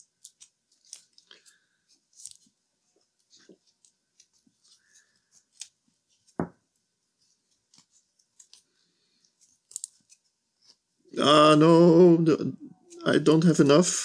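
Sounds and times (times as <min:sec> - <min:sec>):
tape clicks and crackles: 0:07.5 - 0:10.2.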